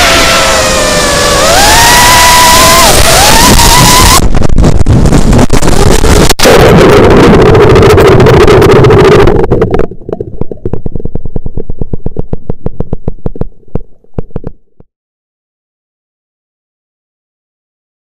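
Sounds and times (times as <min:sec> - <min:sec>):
drone motors running loudly: 0:00.0 - 0:04.2
crackling clicks: 0:04.4 - 0:14.8.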